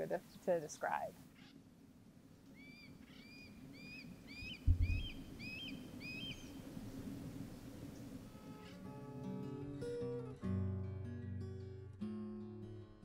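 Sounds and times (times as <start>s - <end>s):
hawk calling: 2.5s - 6.6s
low thump: 4.6s - 5.2s.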